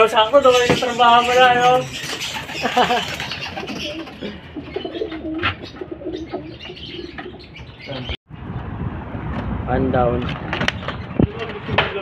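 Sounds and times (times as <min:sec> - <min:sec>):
pigeons cooing: 0:00.3 - 0:08.2.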